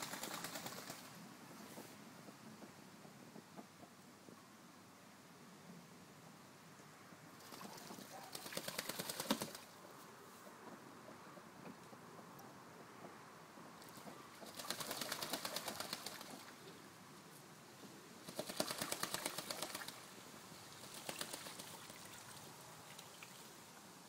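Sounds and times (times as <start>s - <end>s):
ducks splashing in water: 0.0s - 1.2s, 7.4s - 9.8s, 13.8s - 16.7s, 18.2s - 23.6s.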